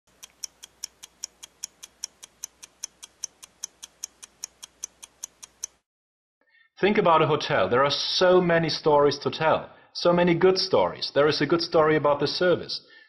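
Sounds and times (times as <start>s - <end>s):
clock ticking: 0.1s - 5.8s.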